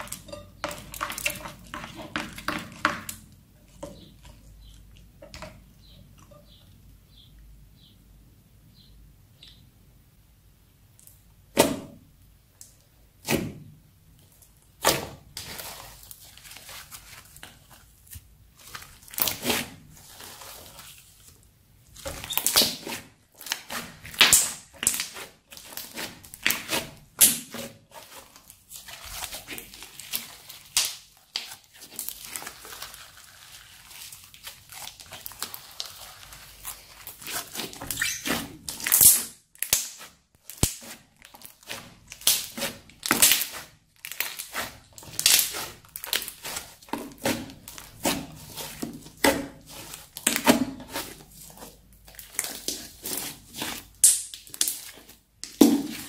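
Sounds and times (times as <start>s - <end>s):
slime squishing: 14.2s - 56.0s
slime popping and crackling: 22.0s - 56.0s.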